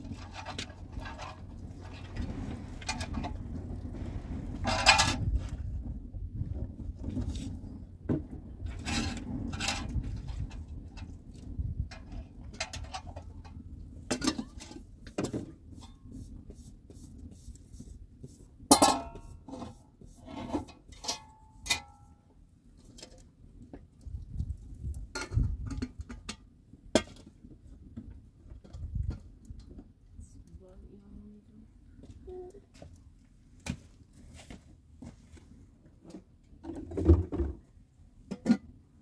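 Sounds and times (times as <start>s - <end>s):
metal pots clinking and knocking: 14.1s - 14.8s, 18.7s - 19.3s, 21.0s - 22.1s.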